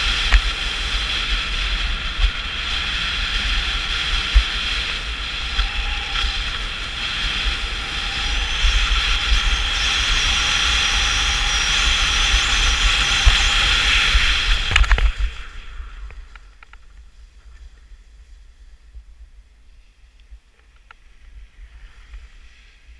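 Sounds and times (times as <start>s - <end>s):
skis hissing over packed snow: 0.0s - 16.3s, 21.2s - 22.9s
wind buffeting microphone: 0.0s - 20.5s.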